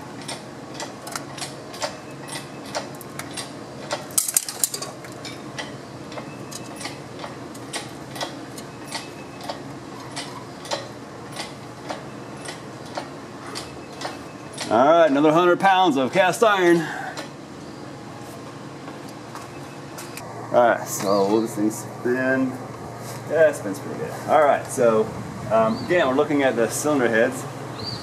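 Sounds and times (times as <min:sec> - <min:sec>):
engine hoist ticking: 0:00.2 - 0:15.4.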